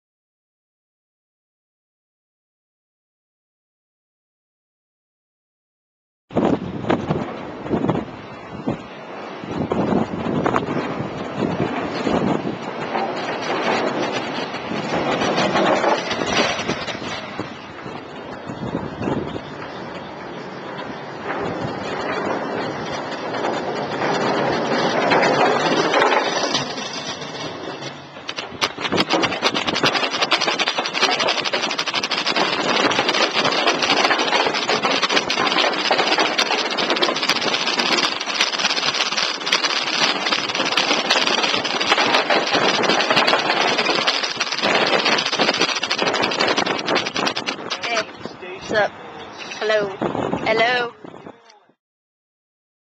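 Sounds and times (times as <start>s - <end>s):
scooter wheels rolling: 9.8s - 49.8s
rapid clicking and rattling: 10.0s - 19.8s, 20.8s - 48.1s.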